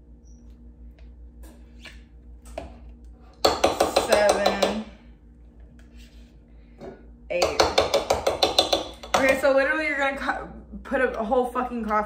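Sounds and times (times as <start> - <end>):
spoon tapping a mug: 7.4 - 9.4.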